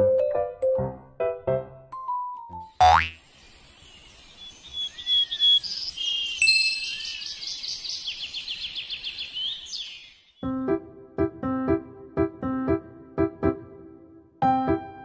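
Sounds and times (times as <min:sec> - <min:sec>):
bird chirps and trills: 0:02.8 - 0:10.4
bright ringing ding: 0:06.4 - 0:07.2.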